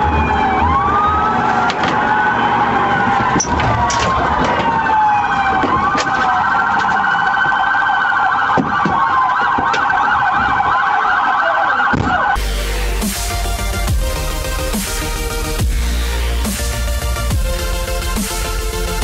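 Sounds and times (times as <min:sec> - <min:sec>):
police sirens wailing and yelping: 0:00.0 - 0:19.0
electronic dance music: 0:10.5 - 0:19.0.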